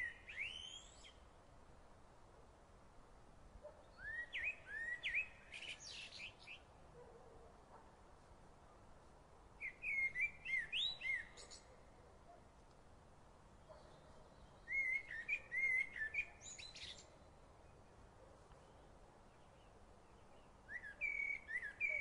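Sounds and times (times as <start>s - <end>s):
songbird chirping: 0.0s - 1.3s, 3.6s - 7.2s, 9.6s - 12.1s, 13.5s - 22.0s
faint steady background noise: 0.0s - 22.0s.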